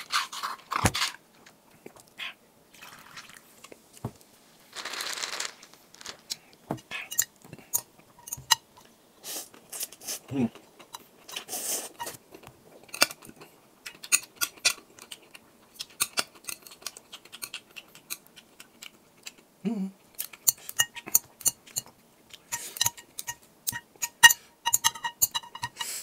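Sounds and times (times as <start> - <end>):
person humming: 19.6 - 20.0
spoon and chopsticks clinking glass bowl: 22.5 - 25.9.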